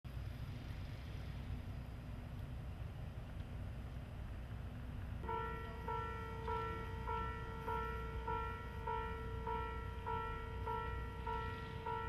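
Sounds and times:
level-crossing bell clanging: 5.2 - 12.0.

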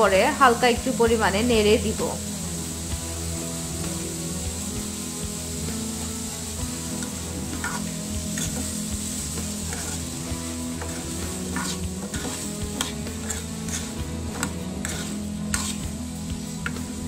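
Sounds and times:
vegetables sizzling in hot oil: 0.0 - 17.0
metal spoon scraping a pan: 6.8 - 17.0.

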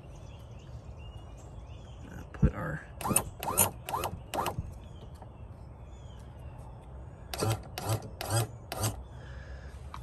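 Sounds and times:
rasping ratchet strokes: 3.0 - 4.6, 7.3 - 9.0.

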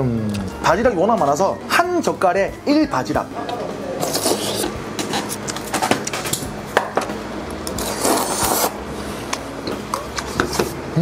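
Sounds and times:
slurping noodles: 4.0 - 4.7, 7.8 - 8.8.

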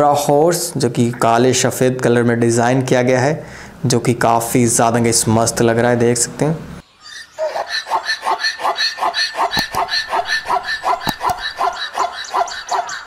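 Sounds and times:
zebra braying call: 7.1 - 13.0.

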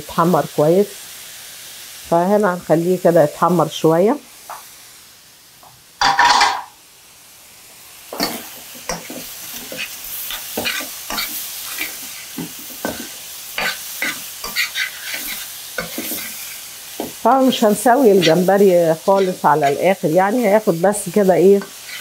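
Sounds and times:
shrimp sizzling in a pan: 0.0 - 22.0
spoon scraping and tapping pan: 6.0 - 6.8, 8.1 - 16.4, 17.0 - 17.5.

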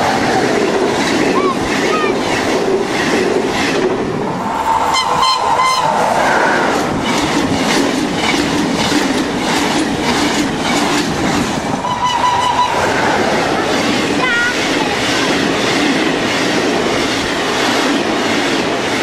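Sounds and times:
train wheels on rail: 0.0 - 19.0
train horn: 4.8 - 6.7, 11.8 - 13.7.

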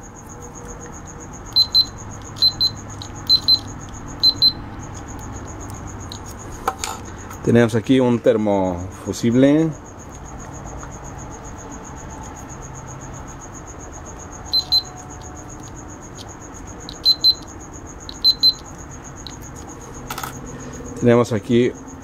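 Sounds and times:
short high-pitched beeps: 1.5 - 4.6, 14.5 - 15.0, 16.9 - 17.5, 18.1 - 18.6.

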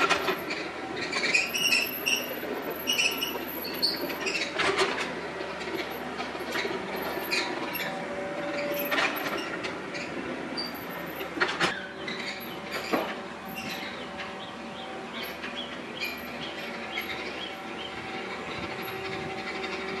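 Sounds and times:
short high squeaks: 0.0 - 5.0, 5.8 - 14.3
excavator diesel engine running: 0.0 - 20.0.

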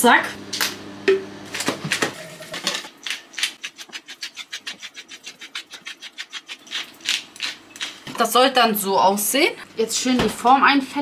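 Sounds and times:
pepper mill grinding: 2.0 - 8.1
whisk beating in a bowl: 3.6 - 7.5.

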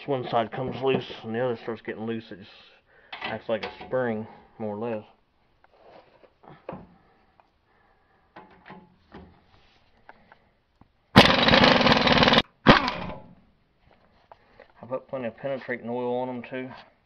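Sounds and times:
impact wrench hammering: 11.2 - 13.2.

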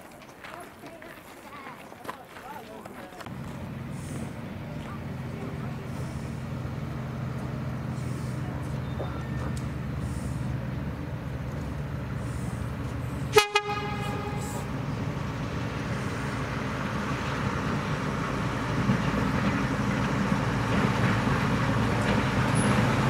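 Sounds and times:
locomotive engine and train rumbling: 0.0 - 23.0
locomotive horn toot: 13.2 - 15.0.

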